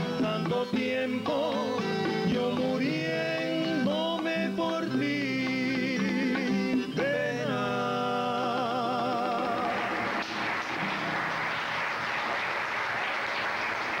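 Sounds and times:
men singing with vibrato: 0:00.0 - 0:10.2
audience applause: 0:09.6 - 0:14.0.

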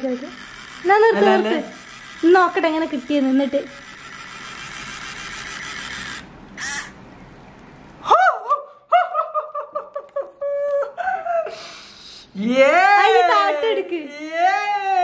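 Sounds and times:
small motor whirring: 0:00.0 - 0:07.0
person laughing excitedly: 0:08.0 - 0:11.8.

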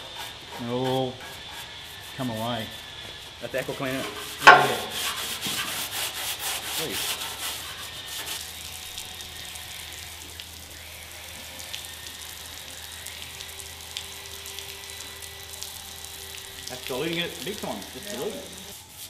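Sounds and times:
scrub pad rasping on metal: 0:00.0 - 0:10.2
garden hose hissing: 0:00.0 - 0:19.0.

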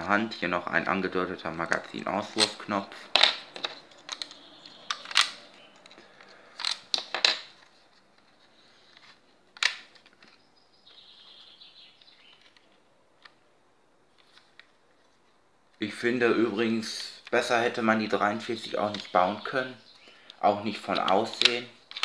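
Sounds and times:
plastic bricks clicking and knocking: 0:01.6 - 0:07.6, 0:20.8 - 0:22.0.

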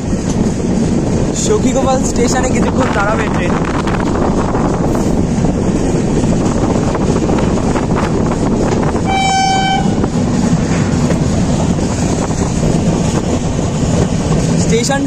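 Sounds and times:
train rumbling: 0:00.0 - 0:15.0
short high train horn: 0:09.0 - 0:10.1.

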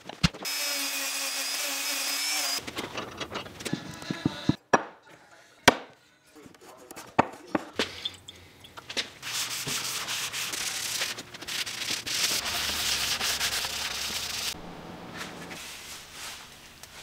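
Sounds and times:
hand scrubbing wood: 0:09.2 - 0:14.6.

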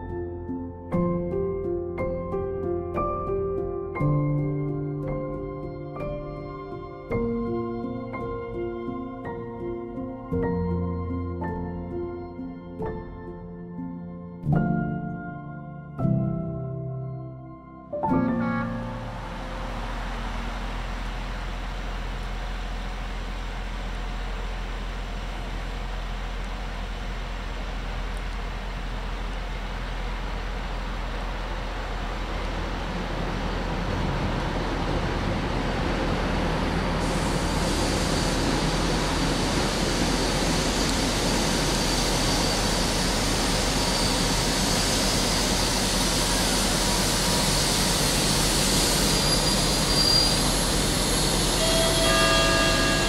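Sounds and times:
diesel locomotive approaching: 0:18.5 - 0:53.0
brakes squealing: 0:48.5 - 0:53.0.

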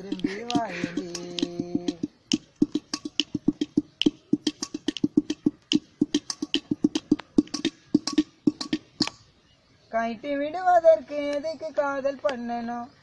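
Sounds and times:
pot drum hand-drummed: 0:00.0 - 0:09.1.

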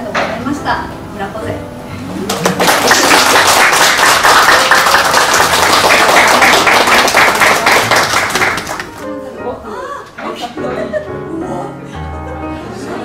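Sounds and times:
audience applauding: 0:02.2 - 0:09.1.

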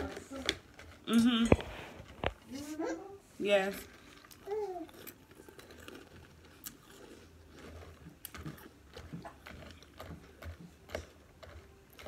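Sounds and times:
chewing cereal with soft crunches: 0:03.5 - 0:12.0.

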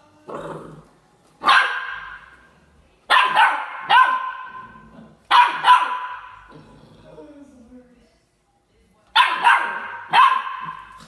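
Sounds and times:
puppy barking: 0:01.4 - 0:02.4, 0:03.1 - 0:06.4, 0:09.2 - 0:11.0.

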